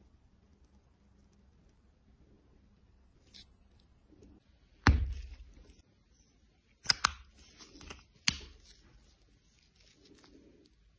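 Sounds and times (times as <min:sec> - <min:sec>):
soft handling: 0:07.3 - 0:10.9.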